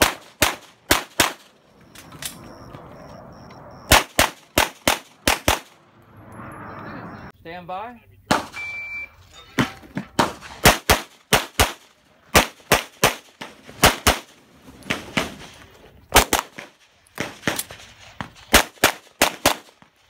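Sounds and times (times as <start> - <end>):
pistol shots: 0.0 - 1.5, 3.9 - 5.8, 10.2 - 14.3, 16.1 - 17.7, 18.5 - 19.8.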